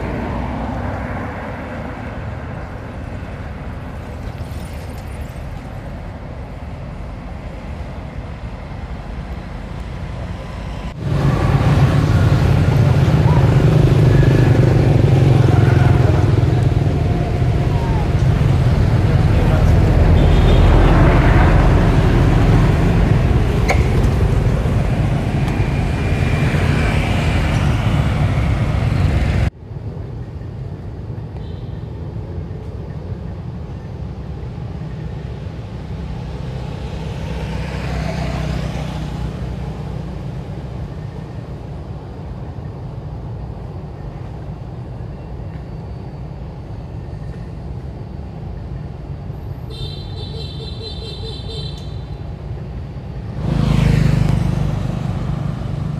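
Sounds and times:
vehicle passing: 0.0 - 29.5, 35.5 - 41.6, 53.0 - 55.9
road traffic rumble: 0.0 - 55.9.

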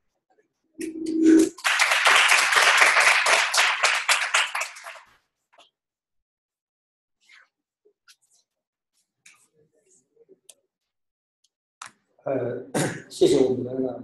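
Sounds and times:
audience applauding: 1.5 - 5.2.

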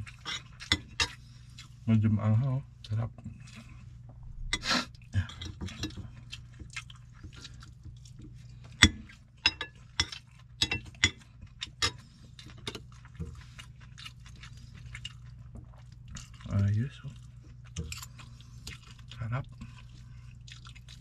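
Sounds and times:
cutlery clinking on ceramic bowls: 8.8 - 12.0.

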